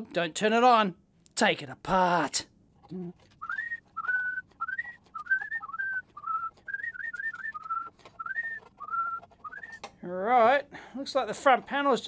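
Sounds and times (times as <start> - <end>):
man whistling a tune: 3.4 - 9.8.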